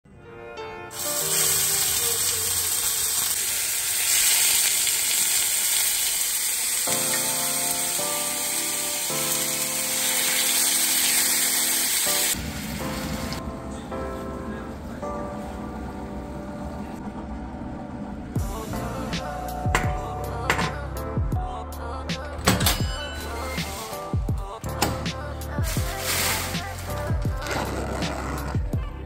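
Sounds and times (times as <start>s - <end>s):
meat sizzling in a pan: 1.0s - 12.4s.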